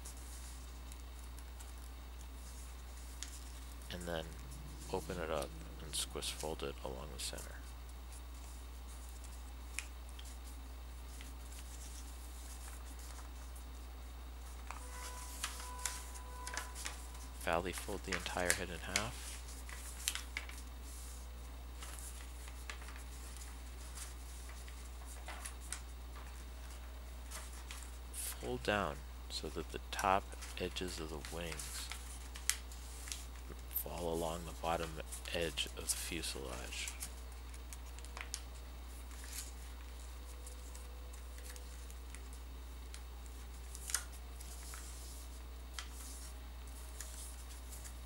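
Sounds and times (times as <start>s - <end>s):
paper rustling and crinkling: 0.0s - 13.6s, 14.4s - 28.5s, 29.9s - 48.0s
steady low hum: 0.0s - 48.0s.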